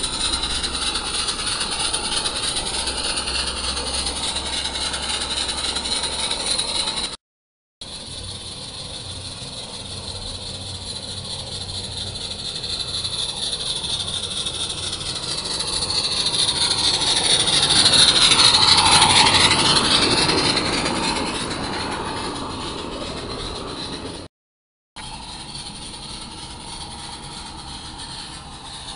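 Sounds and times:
model steam locomotive hissing: 0.0s - 7.2s, 7.8s - 24.3s, 25.0s - 28.9s.

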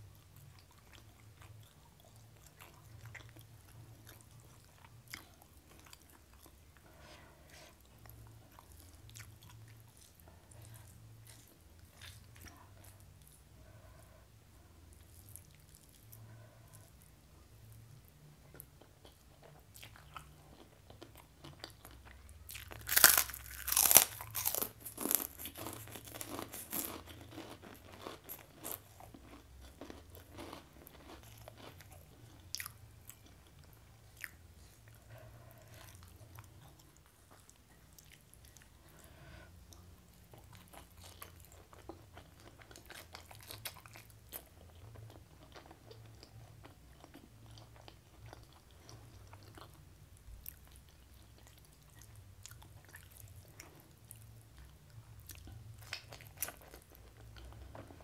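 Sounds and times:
soft chewing with clicks: 0.1s - 14.1s, 14.9s - 58.0s
crunching bites of crisp food: 19.7s - 33.3s.

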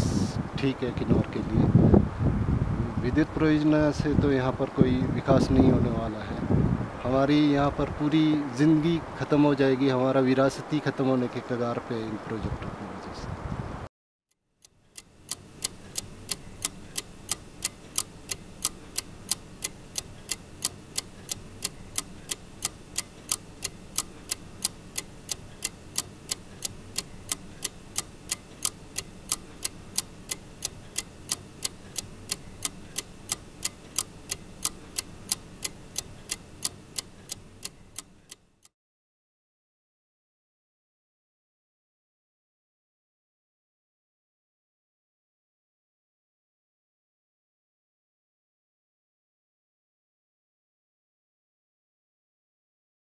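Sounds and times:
clock ticking: 14.6s - 38.4s.

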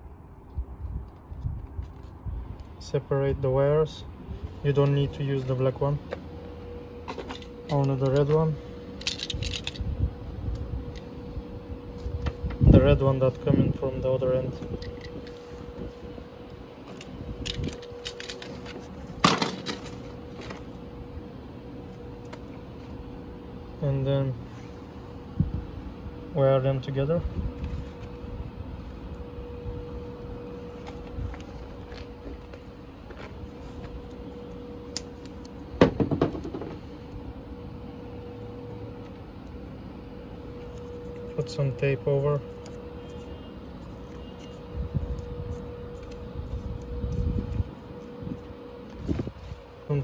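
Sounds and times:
faint steady hum: 0.0s - 50.0s.

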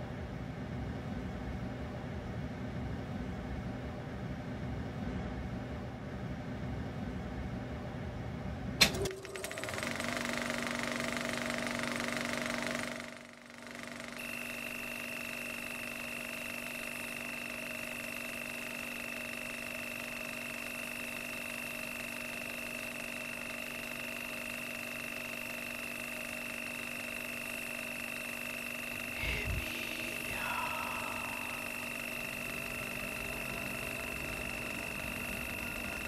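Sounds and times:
high whine: 28.5s - 36.0s
eerie ambient drone: 28.8s - 36.0s.

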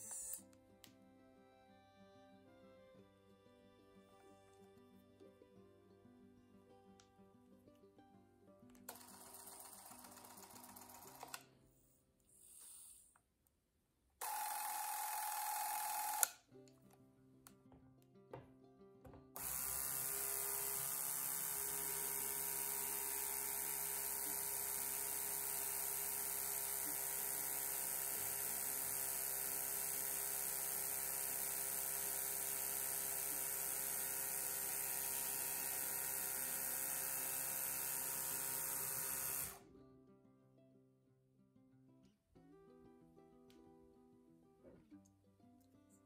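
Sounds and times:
film camera motor whirring: 0.0s - 0.5s, 8.9s - 11.4s, 14.2s - 16.4s, 19.4s - 39.6s.

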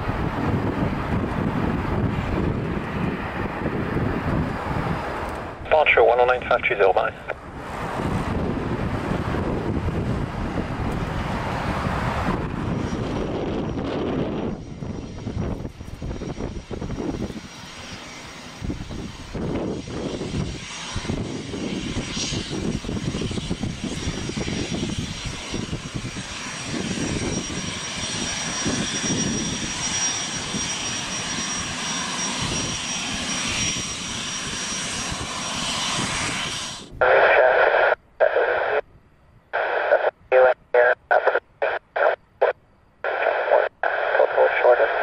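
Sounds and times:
jet engines rumbling with whine: 0.0s - 45.0s
air traffic control radio: 5.6s - 7.4s, 37.0s - 38.9s, 39.5s - 45.0s.

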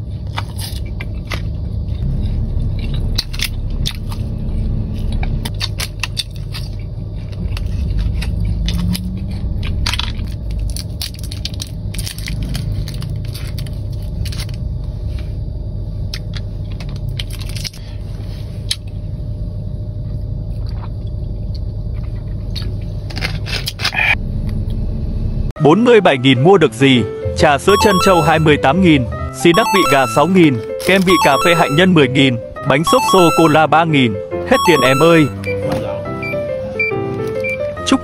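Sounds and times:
crunching food: 0.0s - 4.3s, 5.0s - 14.7s
steady low hum: 0.0s - 25.5s.

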